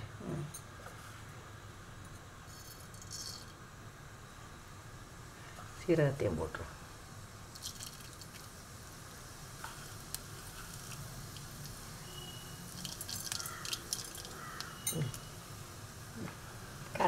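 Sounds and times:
seeds sizzling in hot oil: 0:06.8 - 0:17.0
crackles and pops: 0:07.5 - 0:15.4.

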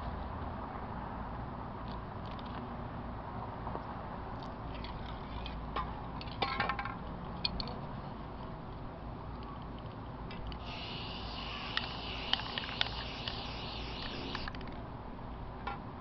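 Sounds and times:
spray paint cans rattling: 0:10.6 - 0:14.6.

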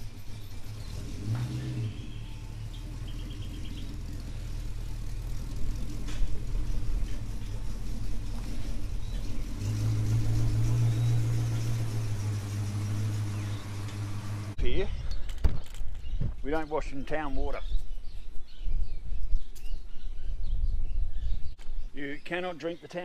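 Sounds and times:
car engine rumbling: 0:00.0 - 0:16.2.

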